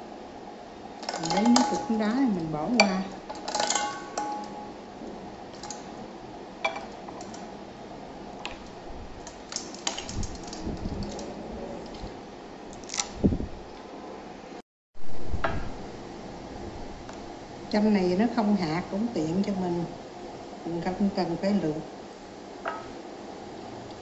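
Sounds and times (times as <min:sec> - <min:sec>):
ice cubes clinking in bowl: 0:01.0 - 0:02.0.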